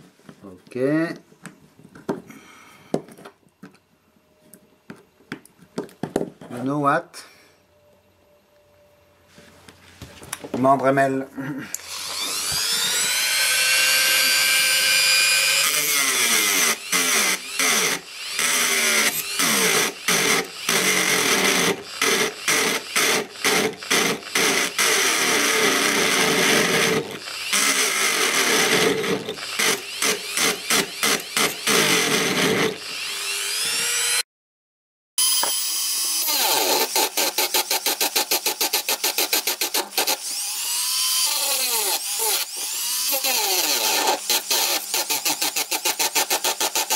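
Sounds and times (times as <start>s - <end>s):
rotary tool cutting metal: 11.8s - 34.2s, 35.2s - 46.9s.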